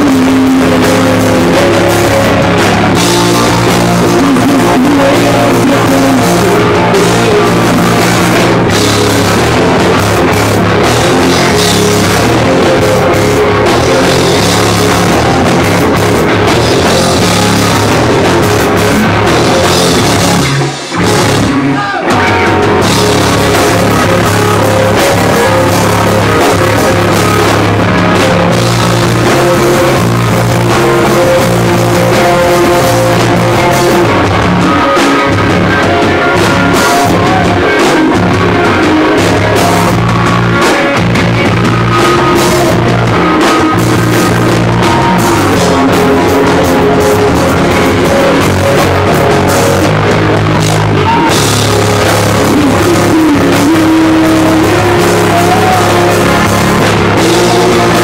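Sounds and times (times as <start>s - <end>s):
drum kit: 0.0s - 58.0s
electric guitars: 0.0s - 58.0s.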